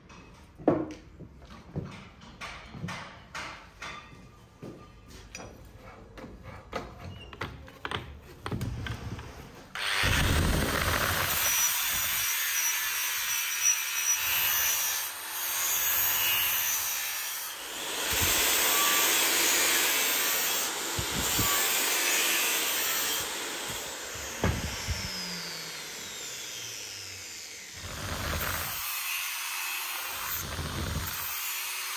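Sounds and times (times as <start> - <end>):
angle grinder grinding steel: 9.8 - 31.9.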